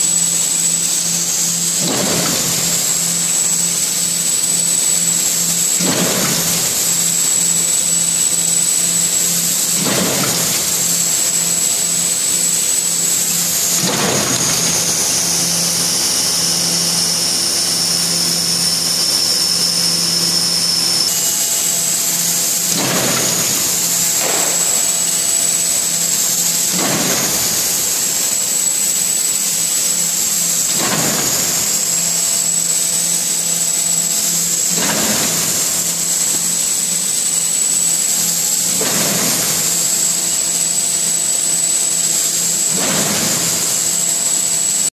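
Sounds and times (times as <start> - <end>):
machine mechanical hum: 0.0 - 44.9
high whine: 10.4 - 33.5.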